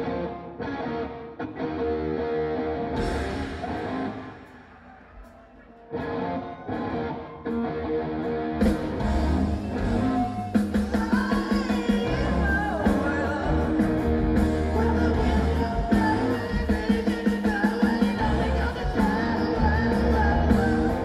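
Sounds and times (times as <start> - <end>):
electric guitar chords: 0.0 - 21.0
live rock band playing: 0.0 - 21.0.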